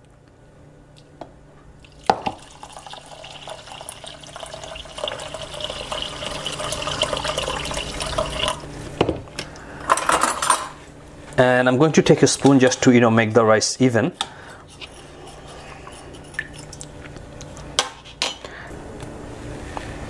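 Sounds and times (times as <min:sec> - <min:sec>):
water pouring into metal bowl: 0:01.8 - 0:08.6.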